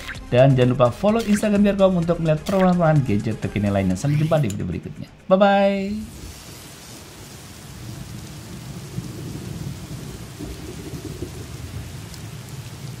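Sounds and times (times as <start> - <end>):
rain hissing: 5.7 - 13.0
thunder rumbling: 6.0 - 13.0.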